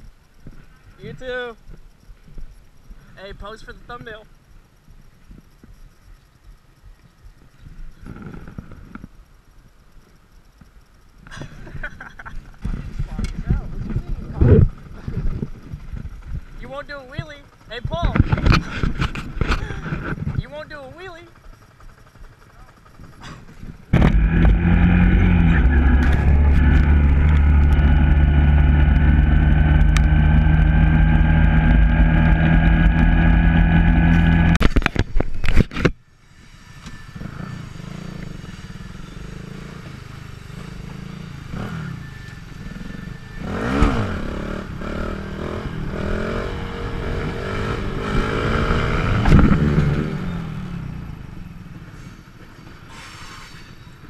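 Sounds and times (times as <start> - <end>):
motorcycle engine revving: 12.6 - 35.7, 36.6 - 52.9.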